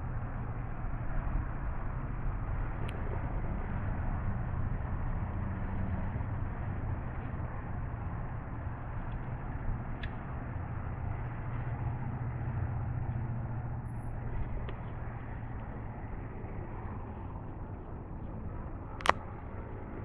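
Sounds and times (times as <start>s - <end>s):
low rumble: 0.0s - 20.0s
sharp click: 19.0s - 19.2s.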